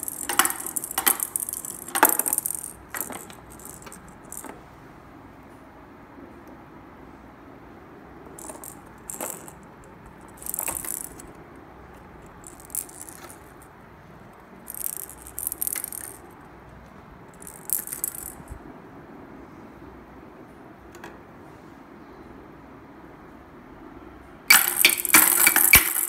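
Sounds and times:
plastic balls clattering on toy ramp: 0:00.0 - 0:04.6, 0:08.4 - 0:09.6, 0:10.3 - 0:11.3, 0:12.3 - 0:13.6, 0:14.7 - 0:16.2, 0:17.4 - 0:18.4, 0:24.5 - 0:26.0.

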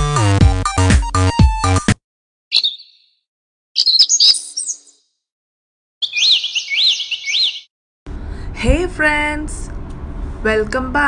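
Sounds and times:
cluster of chirps: 0:02.5 - 0:03.2, 0:03.8 - 0:05.1, 0:06.0 - 0:07.7
whistled chirps: 0:02.5 - 0:03.2, 0:03.8 - 0:05.1, 0:06.0 - 0:07.7.

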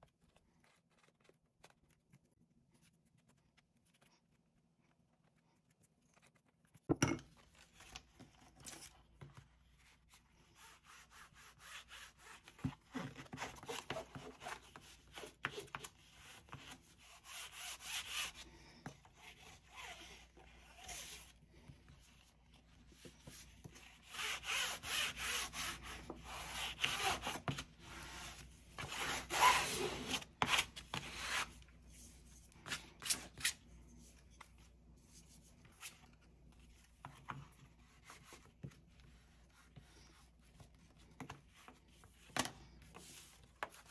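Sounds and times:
bone folder scraping cloth: 0:23.0 - 0:33.6.

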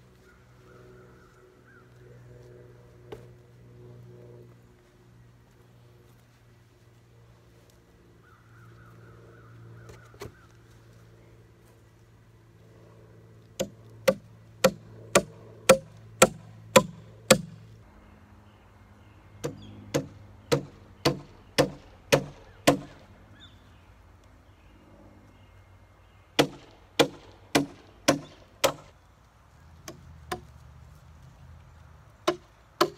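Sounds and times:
hammer striking nail into wood: 0:13.6 - 0:17.6, 0:19.4 - 0:23.0, 0:26.4 - 0:28.9, 0:32.3 - 0:32.9.

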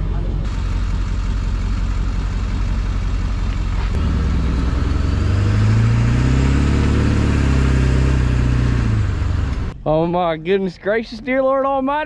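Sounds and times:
pickup truck engine pulling away: 0:00.5 - 0:09.8.

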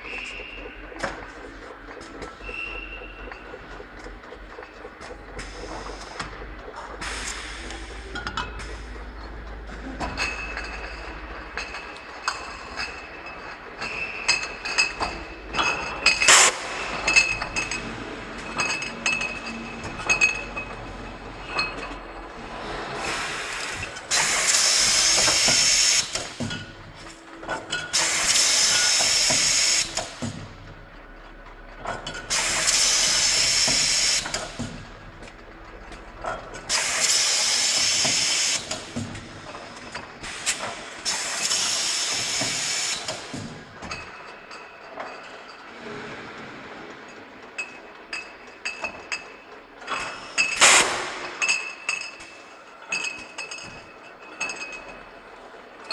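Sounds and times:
bottling machine running: 0:00.0 - 0:55.9
glass bottles clinking: 0:08.2 - 0:08.7, 0:09.7 - 0:22.3, 0:23.8 - 0:30.1, 0:41.4 - 0:45.7, 0:47.6 - 0:55.9.

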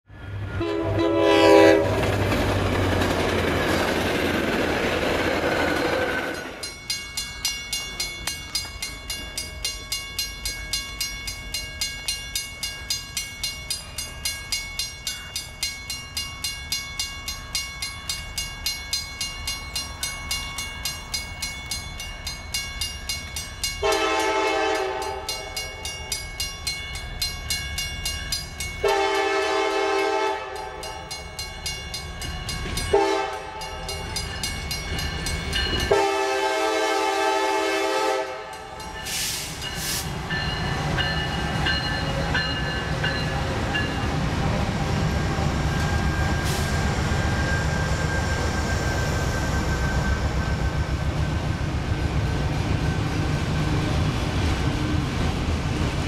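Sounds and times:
crossing warning bell ringing: 0:00.1 - 0:53.3
locomotive air horn blast: 0:00.6 - 0:02.1, 0:23.8 - 0:25.3, 0:28.8 - 0:30.6, 0:32.9 - 0:33.6, 0:35.9 - 0:39.5.

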